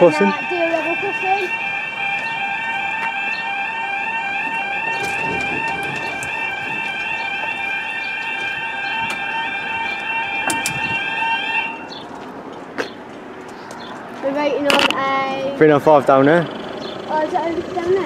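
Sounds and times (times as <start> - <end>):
warbling crossing alarm: 0.0 - 12.1.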